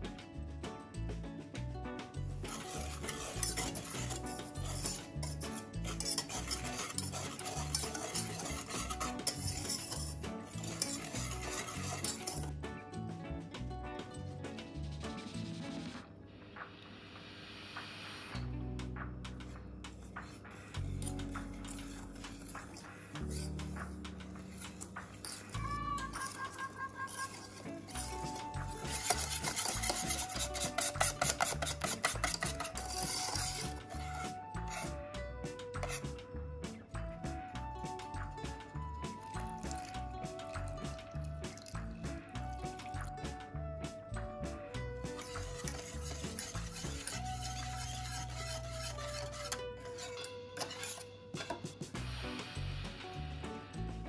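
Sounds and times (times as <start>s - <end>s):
low background music: 0.0s - 54.0s
utensil scraping in a bowl: 2.3s - 12.5s, 20.1s - 35.0s, 35.8s - 36.1s, 39.2s - 43.1s, 45.0s - 51.8s.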